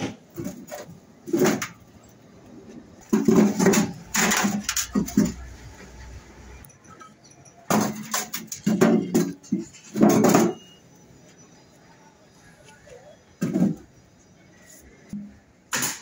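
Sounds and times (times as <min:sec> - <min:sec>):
concrete blocks knocking and scraping: 0:00.0 - 0:06.0, 0:06.6 - 0:10.8, 0:13.3 - 0:14.2.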